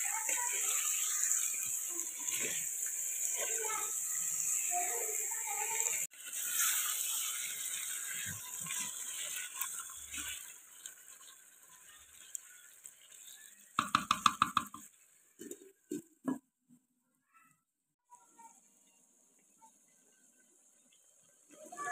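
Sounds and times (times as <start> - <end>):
chicken sizzling in a pot: 0.0 - 16.4, 18.2 - 21.9
glass lid knocking: 13.8 - 14.8.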